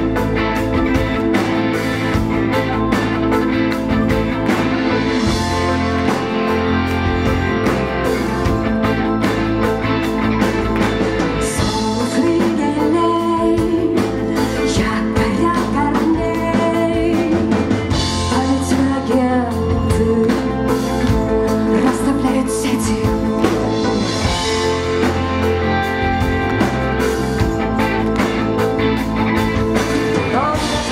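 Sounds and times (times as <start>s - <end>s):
bass guitar: 0.0s - 30.9s
drum kit: 0.0s - 30.9s
electric guitar: 0.0s - 30.9s
woman singing: 11.4s - 24.6s, 30.1s - 30.9s.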